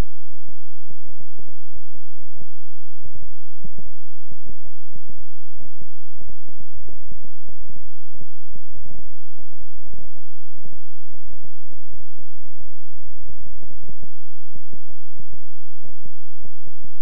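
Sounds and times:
low electronic hum: 0.0 - 17.0.

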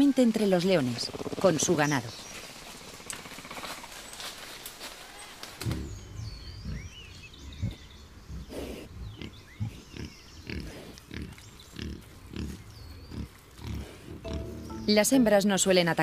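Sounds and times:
wild boars grunting: 5.6 - 14.9.

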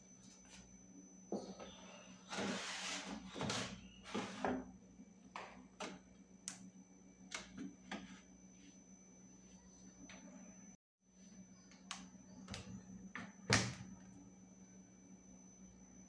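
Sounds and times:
air fryer basket sliding: 2.2 - 4.6.

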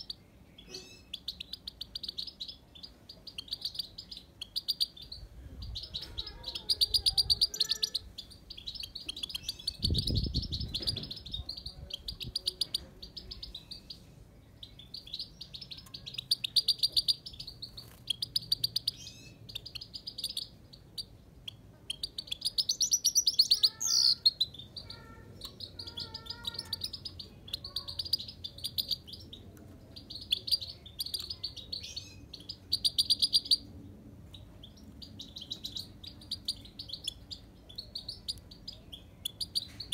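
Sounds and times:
finch twittering song: 0.0 - 39.9.

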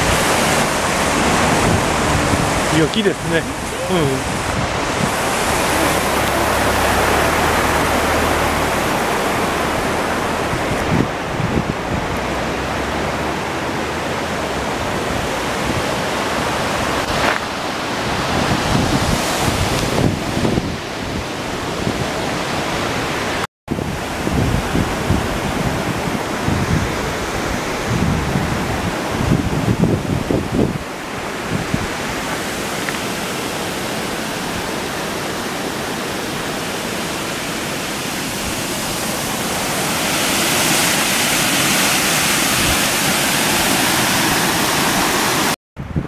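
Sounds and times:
river rushing over rocks: 0.0 - 45.6
wind buffeting microphone: 0.0 - 46.0.

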